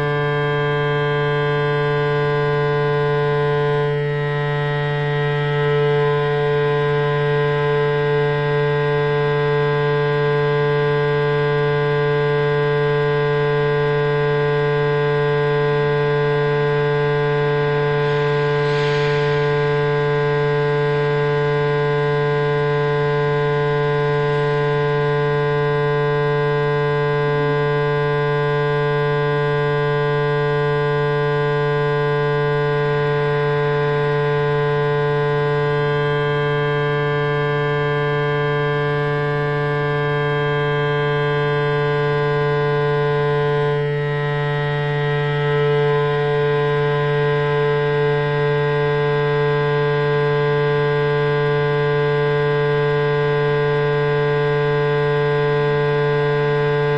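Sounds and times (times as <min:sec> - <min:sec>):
loud electronic drone: 0:00.0 - 0:56.9
brief hiss: 0:18.1 - 0:19.9.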